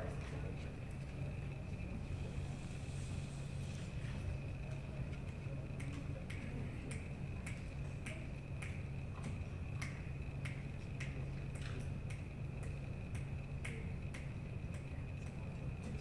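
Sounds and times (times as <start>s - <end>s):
low steady hum: 0.0s - 16.0s
finger snaps: 5.2s - 16.0s.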